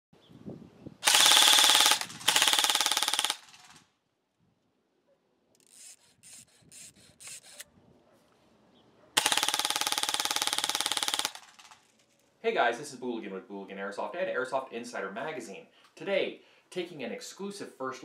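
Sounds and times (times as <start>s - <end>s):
airsoft rifle firing full-auto: 1.0s - 3.8s, 9.2s - 11.8s
sharp clicks: 1.0s - 3.8s, 9.2s - 11.9s.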